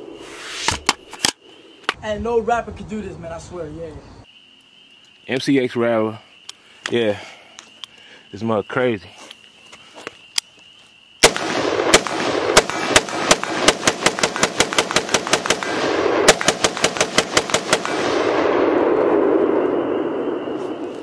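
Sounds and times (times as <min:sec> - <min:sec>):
rifle gunshots: 0:11.2 - 0:18.9.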